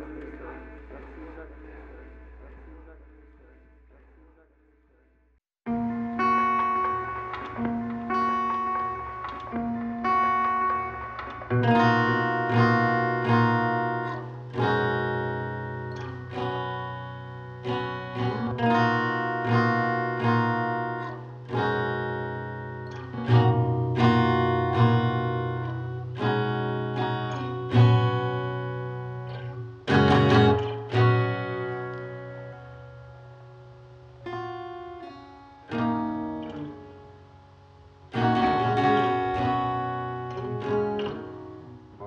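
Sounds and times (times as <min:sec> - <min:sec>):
sustained low guitar notes: 0:05.7 - 0:37.0
plucked guitar chords: 0:05.7 - 0:42.0.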